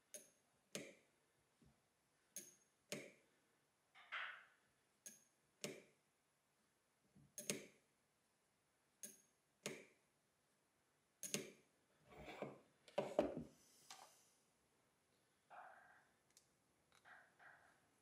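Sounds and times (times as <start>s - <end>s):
mechanical counter clicking: 0.0s - 1.0s, 2.3s - 3.1s, 5.0s - 5.8s, 7.4s - 7.8s, 9.0s - 9.9s, 11.2s - 11.6s.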